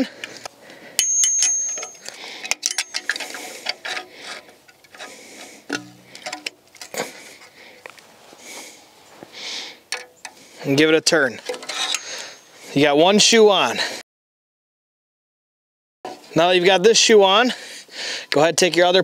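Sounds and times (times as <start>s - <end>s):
pliers clicking and scraping metal: 0.2s - 7.0s, 11.4s - 12.5s
high metallic ring: 1.0s - 2.1s, 11.8s - 12.6s.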